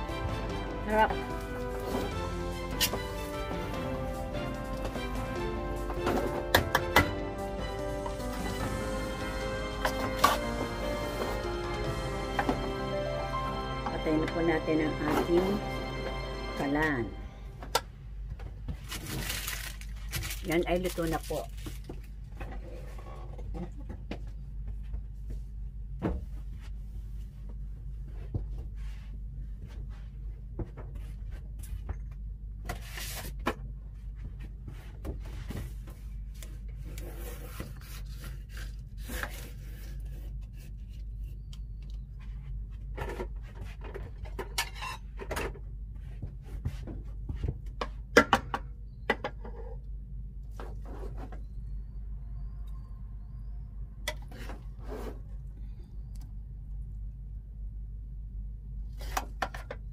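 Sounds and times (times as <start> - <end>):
steady low hum: 33.6 - 59.9.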